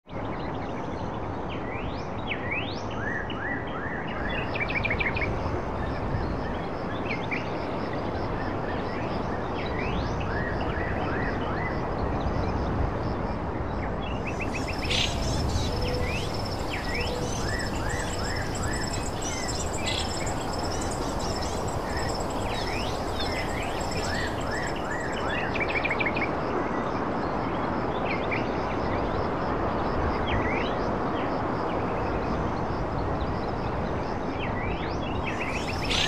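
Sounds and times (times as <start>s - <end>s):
steady background hiss: 13.8s - 26.2s, 35.0s - 36.0s
high continuous bird trill: 14.0s - 26.3s, 34.4s - 36.0s
small birds chirping: 14.2s - 25.9s, 35.2s - 36.0s.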